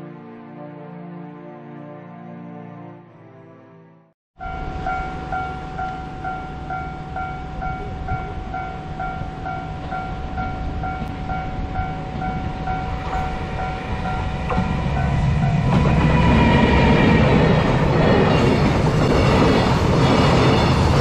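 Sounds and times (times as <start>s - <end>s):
freight train rumbling past: 4.4s - 21.0s
level-crossing alarm dinging: 4.4s - 21.0s.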